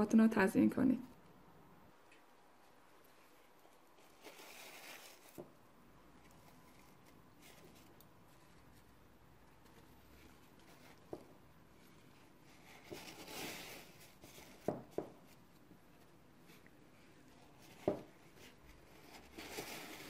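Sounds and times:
paper napkins rustling: 0:03.0 - 0:20.0.

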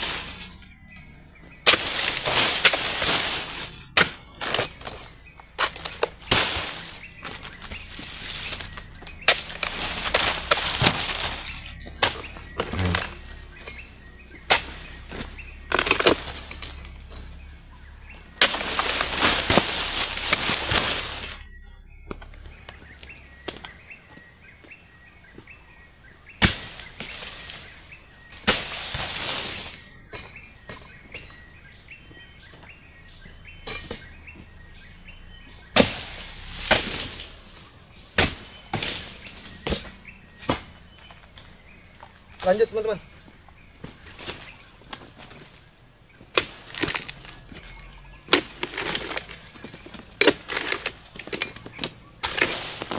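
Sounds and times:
fronds crashing through leaves: 0:00.0 - 0:00.6, 0:01.7 - 0:17.5, 0:18.1 - 0:21.5, 0:26.4 - 0:29.9, 0:35.7 - 0:41.0, 0:46.4 - 0:52.9
blade knocking and cutting wood: 0:04.0 - 0:17.3.

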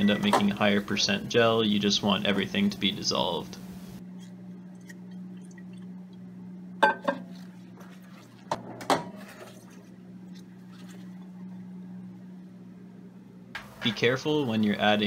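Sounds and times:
microwave oven hum: 0:00.0 - 0:15.0
glass flask clinking: 0:06.8 - 0:07.3.

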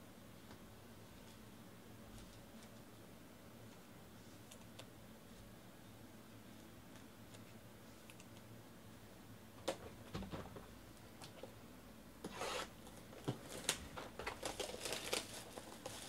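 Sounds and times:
cardboard rustle: 0:12.4 - 0:16.0.

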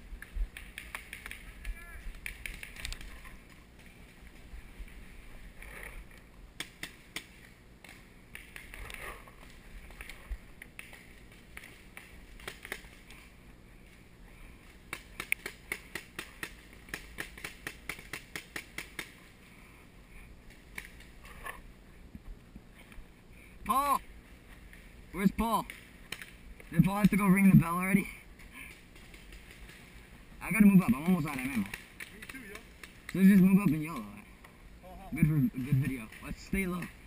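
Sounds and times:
paintball markers firing: 0:14.9 - 0:19.2.

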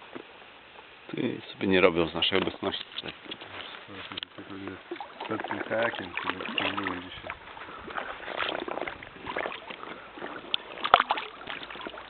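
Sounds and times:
paddle splashing in water: 0:02.4 - 0:12.0.

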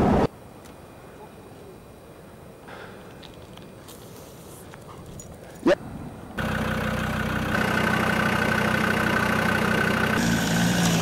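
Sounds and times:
engine running steadily: 0:05.0 - 0:11.0.

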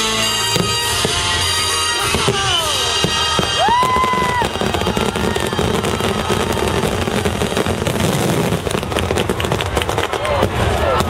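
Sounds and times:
music: 0:00.0 - 0:09.6
firework rising whistle: 0:00.0 - 0:11.0
fireworks crackling and popping: 0:00.0 - 0:11.0.

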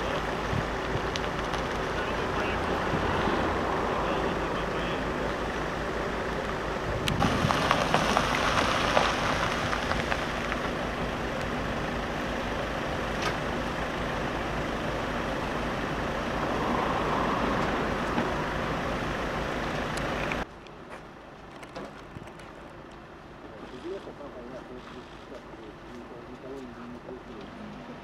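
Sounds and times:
crackling: 0:00.0 - 0:02.7, 0:07.0 - 0:11.6
rushing noise: 0:00.0 - 0:12.0, 0:14.8 - 0:20.4
vehicle engine running: 0:00.0 - 0:28.0.

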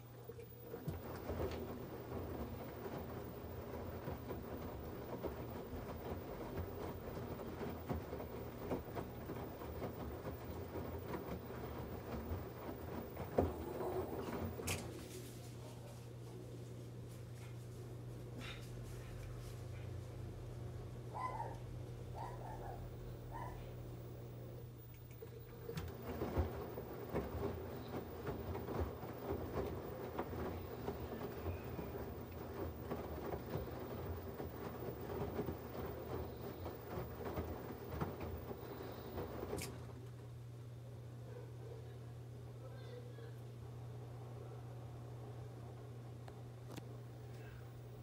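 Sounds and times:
washing machine motor hum: 0:00.0 - 0:48.0
laundry tumbling thuds: 0:00.5 - 0:15.2, 0:25.4 - 0:40.1.

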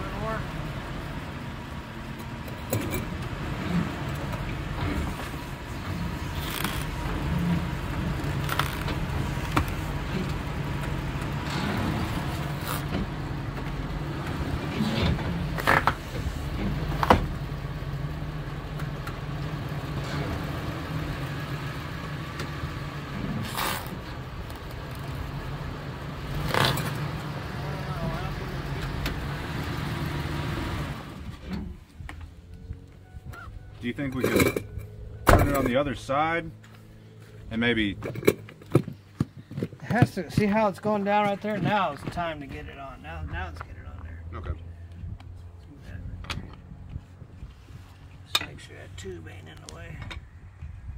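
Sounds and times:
tire iron clicks and knocks: 0:38.0 - 0:40.6.

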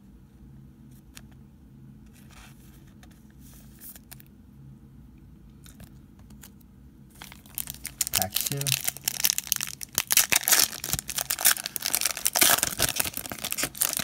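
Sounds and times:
low steady hum: 0:00.0 - 0:14.0
trading cards rustling and ticking: 0:05.6 - 0:14.0.

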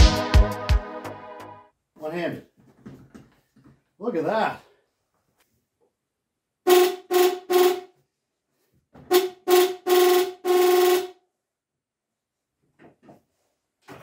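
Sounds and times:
electric horn beeping: 0:06.7 - 0:08.0, 0:09.1 - 0:11.2.

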